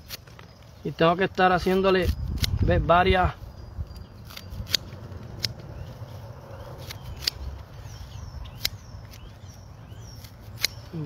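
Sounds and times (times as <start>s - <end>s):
scissors snipping parsley: 4.2s - 5.6s, 6.8s - 7.6s, 10.1s - 11.0s.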